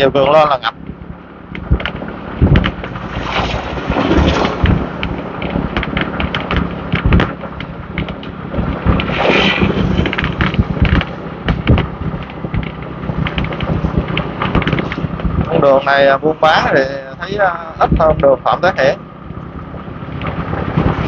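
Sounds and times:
motorbike engine hum: 0.0 - 21.0
wind buffeting microphone: 0.0 - 21.0
sharp rattles and clicks: 0.1 - 21.0.

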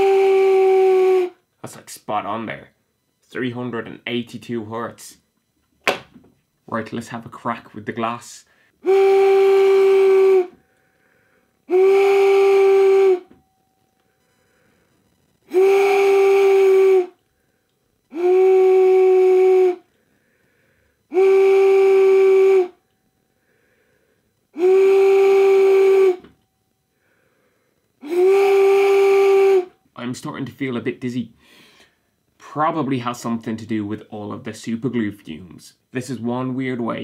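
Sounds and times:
plastic whistle blasts: 0.0 - 1.4, 8.8 - 10.7, 11.7 - 13.5, 15.5 - 17.2, 18.1 - 19.9, 21.1 - 22.8, 24.5 - 26.4, 28.0 - 29.8.

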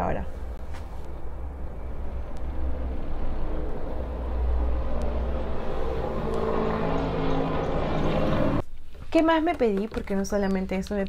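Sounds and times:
low steady rumble: 0.0 - 8.6.

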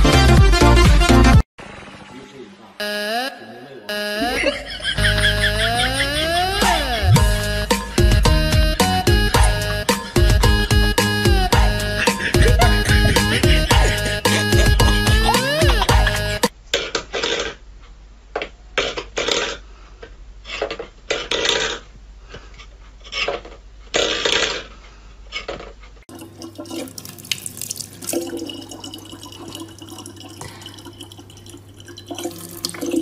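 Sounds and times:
tap water splashing into bottle: 26.1 - 30.6.

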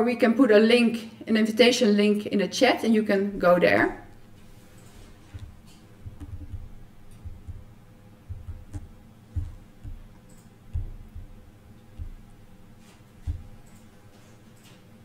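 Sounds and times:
typing on laptop keyboard: 4.1 - 7.7, 8.3 - 14.0.

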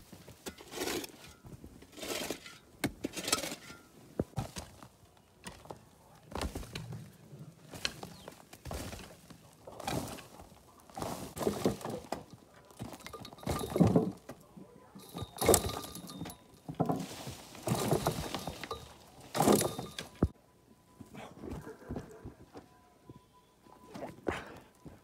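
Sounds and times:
earth and rubble crashing down: 17.0 - 20.3.

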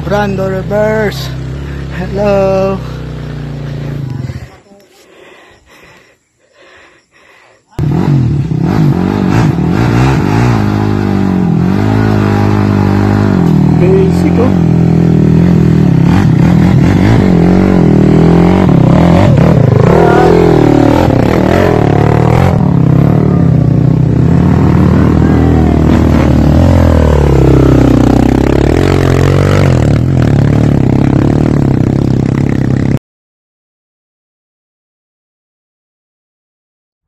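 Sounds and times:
dirt bike engine revving: 7.8 - 33.0.

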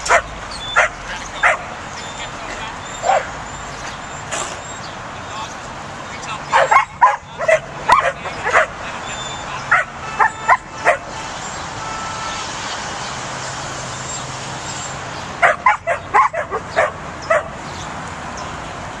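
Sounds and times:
puppy yapping: 2.9 - 3.4.

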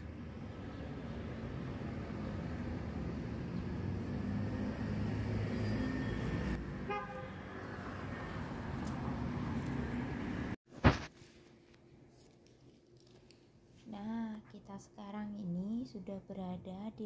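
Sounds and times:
street traffic rumble: 0.0 - 10.6
vehicle horn toot: 6.8 - 7.6.

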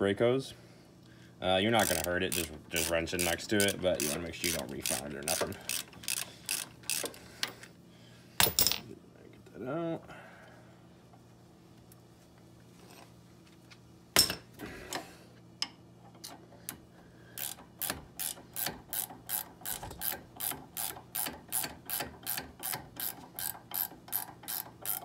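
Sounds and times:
hand ratchet clicking: 1.7 - 7.7, 17.4 - 25.0.

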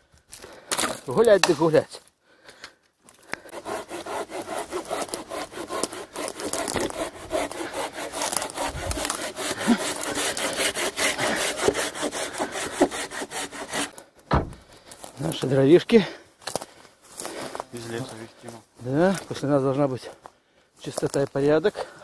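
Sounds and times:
hand saw cutting wood: 3.3 - 14.0.

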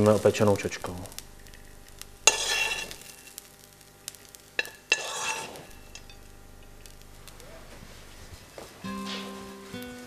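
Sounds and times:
spoon scraping sizzling pan: 1.2 - 7.4.

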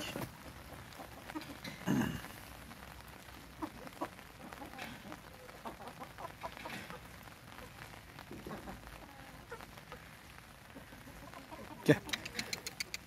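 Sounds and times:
chickens clucking faintly: 3.2 - 13.0.

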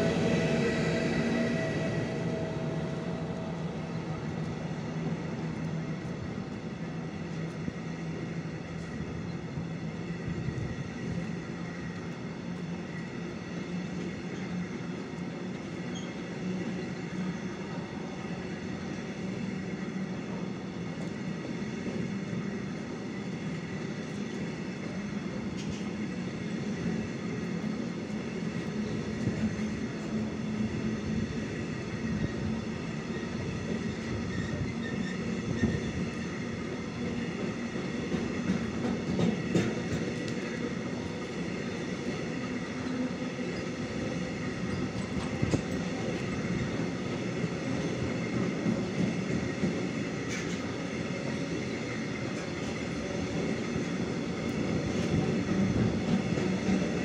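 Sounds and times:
train wheels rolling on rails: 0.0 - 57.0.

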